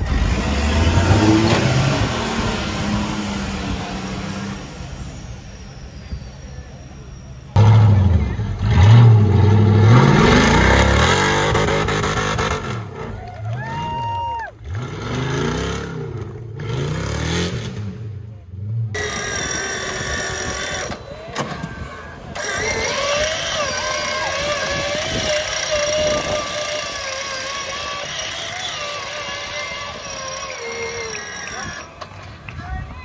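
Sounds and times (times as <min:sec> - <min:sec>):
electric winch whine: 0:00.0 - 0:11.6, 0:19.0 - 0:32.5
off-road vehicle engine revving: 0:00.0 - 0:32.6.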